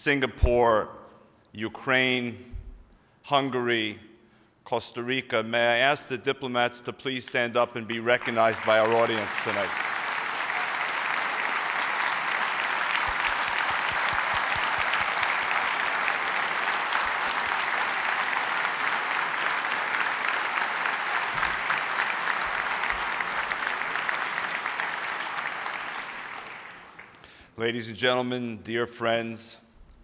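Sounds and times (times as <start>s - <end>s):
audience applauding: 7.9s - 27.3s.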